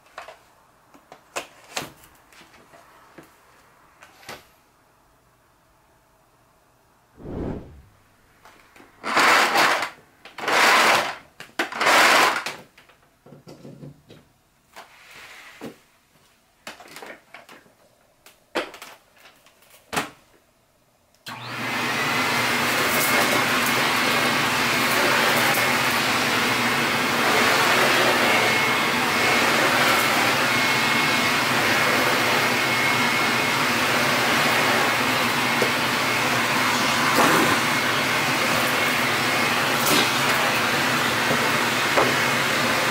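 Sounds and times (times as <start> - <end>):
vacuum cleaner running: 9.0 - 11.1, 11.8 - 12.4, 21.3 - 42.9
vacuum nozzle on carpet: 9.1 - 9.8, 21.3 - 42.9.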